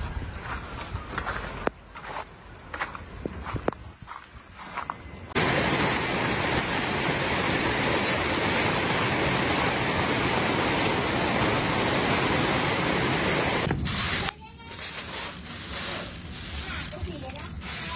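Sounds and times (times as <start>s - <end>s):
hail and heavy rain pelting: 5.4s - 13.7s.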